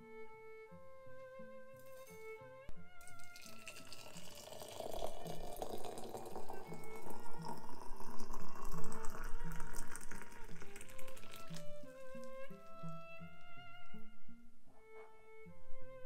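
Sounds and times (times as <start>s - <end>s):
water pouring into teapot: 3.0s - 13.4s.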